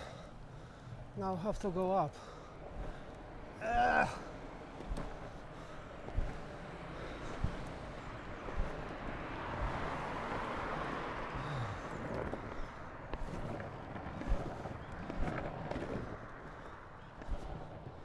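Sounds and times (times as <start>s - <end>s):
longboard wheels rolling on pavement: 0.0s - 18.0s
road traffic passing: 0.0s - 18.0s
wheels knocking over joints: 1.6s - 18.0s.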